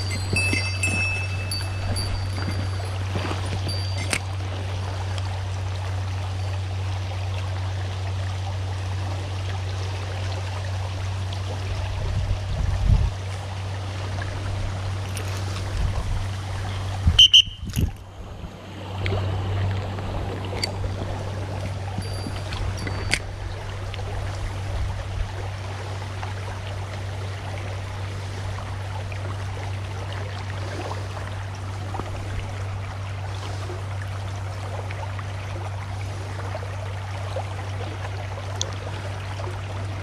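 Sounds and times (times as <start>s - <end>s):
river water flowing: 0.0s - 40.0s.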